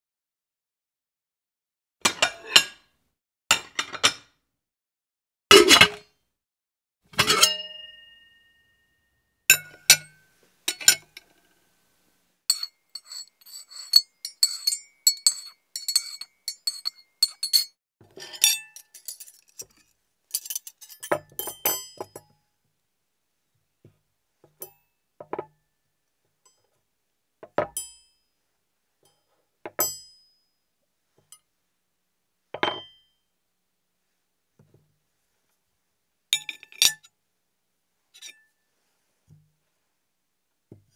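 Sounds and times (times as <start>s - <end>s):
dishes clinking and clattering: 12.5s - 22.2s.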